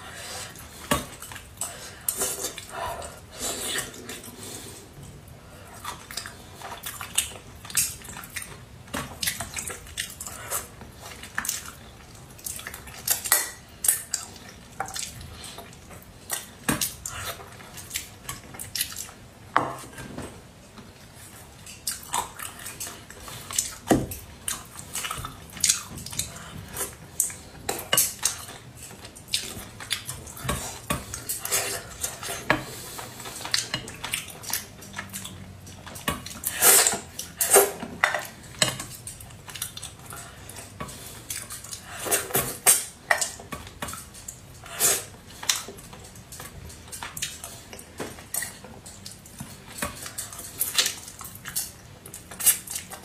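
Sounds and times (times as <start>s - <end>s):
wet chewing and slurping: 21.0s - 53.0s.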